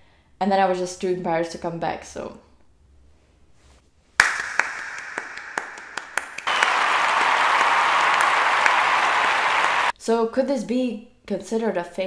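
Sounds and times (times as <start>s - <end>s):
crowd applause: 4.2s - 9.9s.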